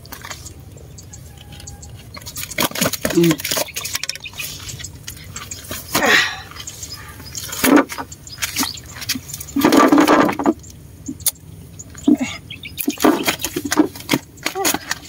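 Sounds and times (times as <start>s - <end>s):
fish flapping and knocking: 0.0s - 0.6s, 1.4s - 6.2s, 7.4s - 10.6s, 12.8s - 15.0s.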